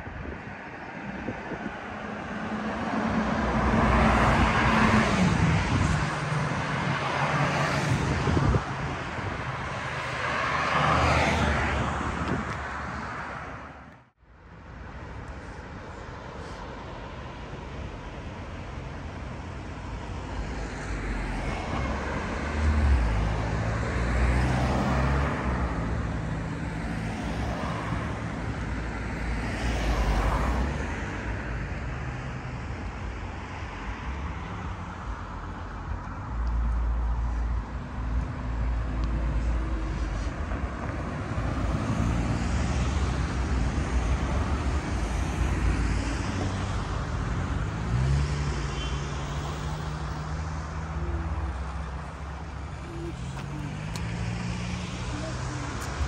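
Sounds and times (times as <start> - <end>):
cars passing: 0.0 - 56.0
steady low traffic rumble: 49.2 - 56.0.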